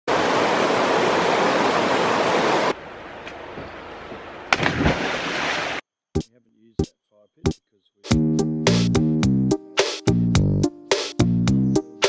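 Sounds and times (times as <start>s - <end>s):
water rushing over rocks: 0.1s - 2.8s
person jumping into water splash: 4.5s - 5.8s.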